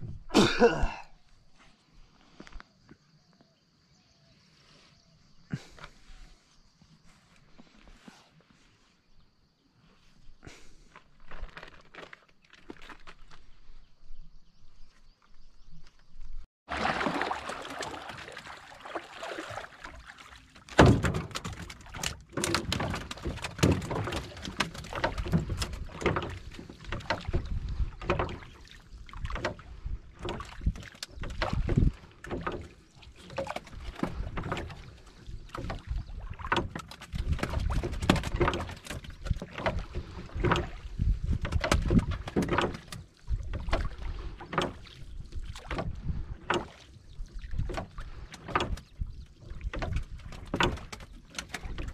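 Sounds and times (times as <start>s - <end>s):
wind on microphone: 0.0s - 0.4s, 22.8s - 32.5s, 37.1s - 50.8s
water slapping against boat: 16.6s - 51.9s
line hauling knocks and rustles: 17.2s - 51.9s.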